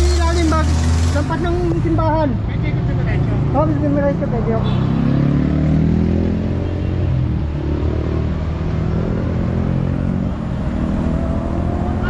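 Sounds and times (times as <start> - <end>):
vehicle engine running: 0.0 - 2.4
street traffic: 0.0 - 12.0.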